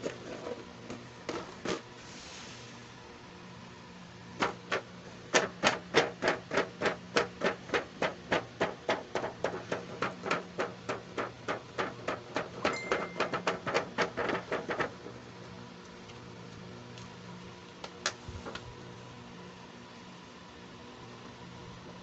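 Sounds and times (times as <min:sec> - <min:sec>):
fingers tapping on cardboard box: 0:04.4 - 0:15.0.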